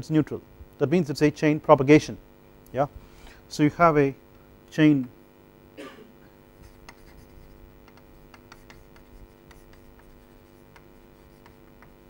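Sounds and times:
low steady hum: 0.0s - 12.0s
chalk writing on chalkboard: 6.6s - 12.0s.

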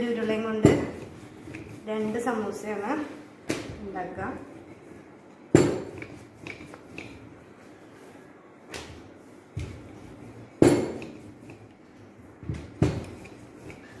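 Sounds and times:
rolling pin knocking on table: 0.6s - 1.1s, 5.5s - 6.8s, 10.6s - 11.2s, 12.5s - 13.3s.

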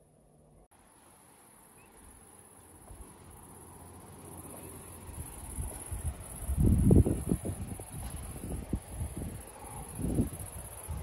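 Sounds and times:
insects trilling: 0.9s - 11.0s
wind rumbling on microphone: 5.0s - 11.0s.

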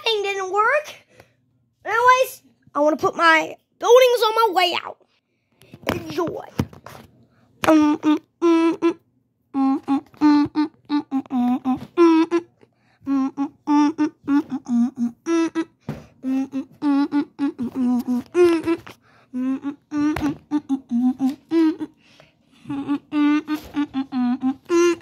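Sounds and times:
person humming: 7.6s - 25.0s.

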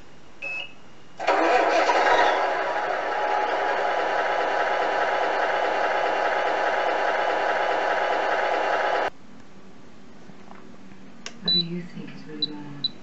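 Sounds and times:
simulated engine start: 1.2s - 9.1s.

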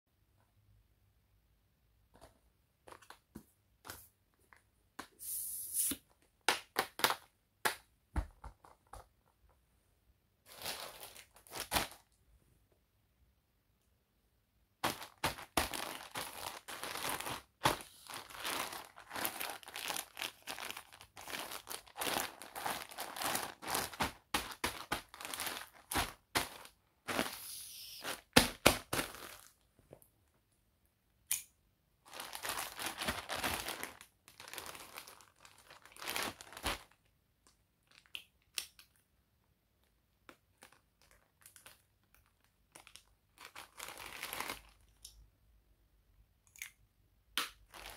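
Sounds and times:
plastic bag rustling: 10.5s - 12.1s, 14.8s - 29.6s, 32.1s - 37.0s.

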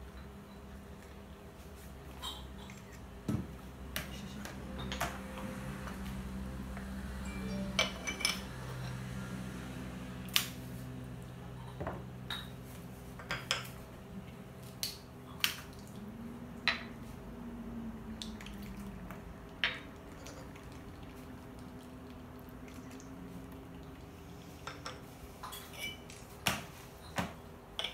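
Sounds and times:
low steady hum: 0.0s - 27.9s
porcelain cups clinking: 7.2s - 8.8s.

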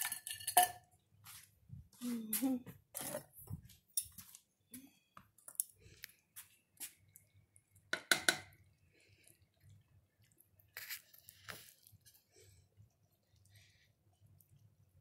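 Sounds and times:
spoon stirring thick gravy: 5.2s - 14.9s
spoon clattering against pan: 7.9s - 8.6s.

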